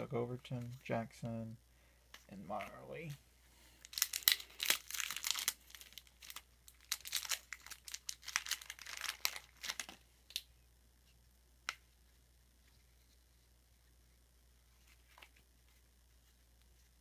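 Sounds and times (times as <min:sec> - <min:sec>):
wrapper tearing and crinkling: 0:03.8 - 0:10.4.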